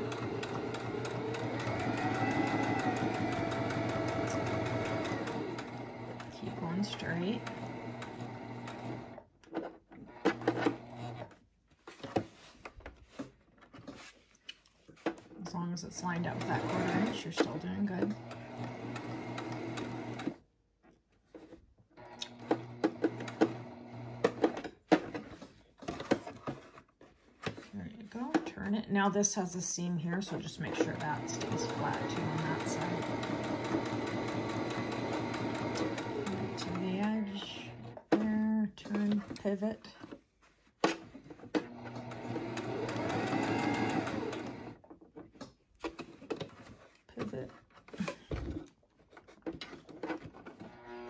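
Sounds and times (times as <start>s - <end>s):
sewing machine stitching: 0.0s - 11.4s, 16.0s - 20.4s, 22.0s - 26.1s, 30.0s - 39.6s, 41.2s - 44.8s, 50.0s - 51.0s.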